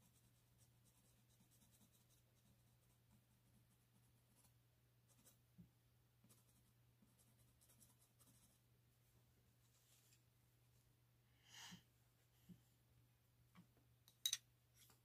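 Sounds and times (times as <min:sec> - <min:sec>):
pencil scratching on paper: 0:00.0 - 0:05.4, 0:06.2 - 0:08.6.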